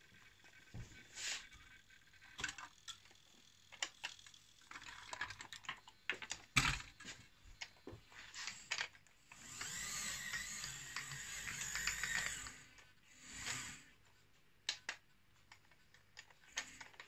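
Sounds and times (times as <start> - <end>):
plastic toy clicks and knocks: 2.3 - 7.8, 9.6 - 12.5.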